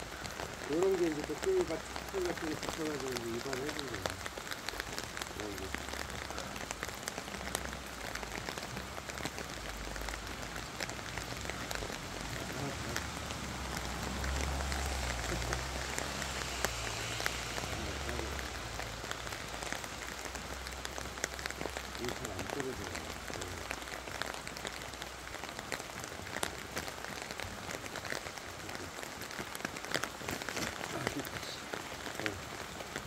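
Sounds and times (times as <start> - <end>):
raindrops ticking close by: 0.0 - 33.0
steady rain falling: 0.0 - 33.0.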